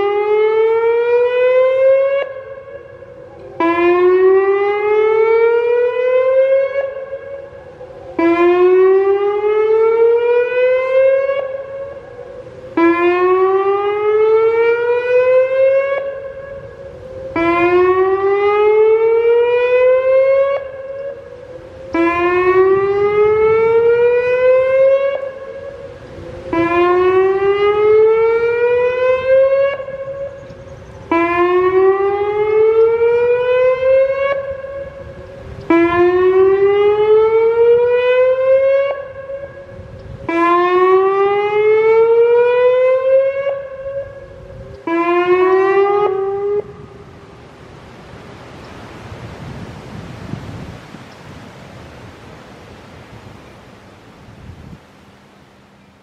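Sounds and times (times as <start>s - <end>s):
warning siren whoop: 0.0s - 47.4s.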